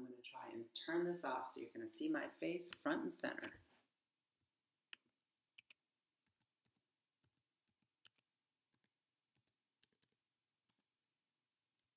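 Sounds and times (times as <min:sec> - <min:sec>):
computer controls clicking: 0:04.9 - 0:10.9.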